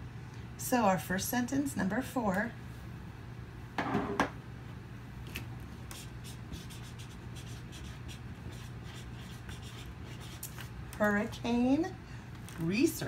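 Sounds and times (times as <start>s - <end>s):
marker scratching on paper: 5.9s - 10.7s.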